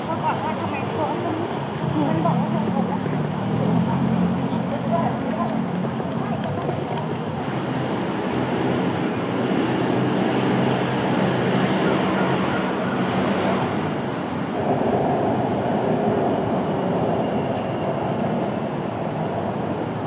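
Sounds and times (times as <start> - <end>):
bus engine humming: 0.0 - 20.0
city road traffic: 0.0 - 20.0.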